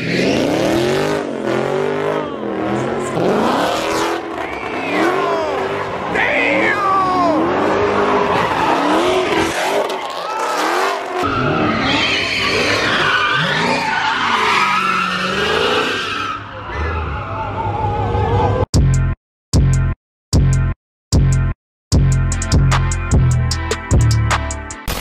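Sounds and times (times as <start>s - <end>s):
car engines revving: 0.0s - 18.7s
tyres screeching on pavement: 2.5s - 17.8s.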